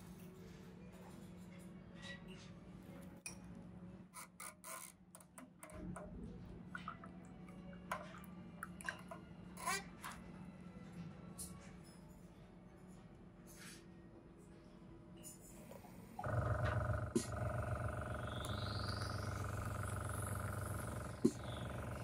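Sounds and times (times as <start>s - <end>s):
faint steady hum: 15.7s - 22.0s.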